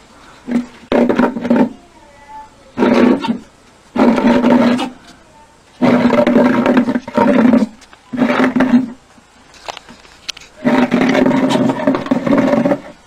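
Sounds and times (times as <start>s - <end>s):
animal growling: 4.0s - 5.2s, 10.6s - 13.0s.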